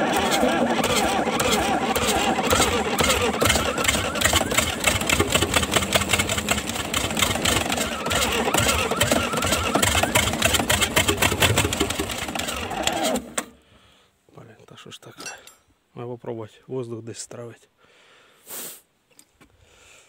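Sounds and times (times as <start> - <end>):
diesel engine cranking on starter: 0.0 - 13.6.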